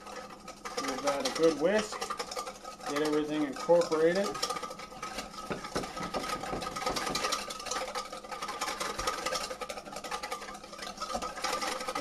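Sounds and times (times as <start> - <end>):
whisk scraping metal bowl: 0.0 - 12.0.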